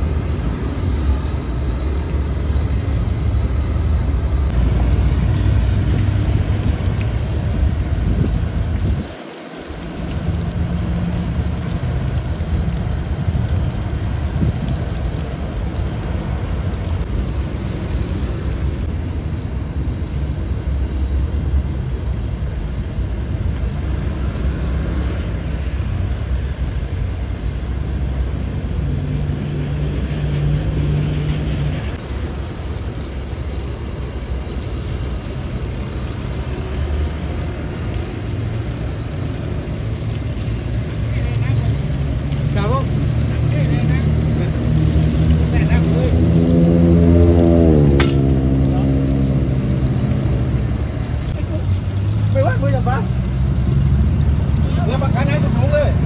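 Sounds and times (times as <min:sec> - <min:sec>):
low hum: 0:00.0 - 0:09.0
continuous low rumble: 0:00.0 - 0:56.0
oil bubbling and sizzling: 0:00.0 - 0:56.0.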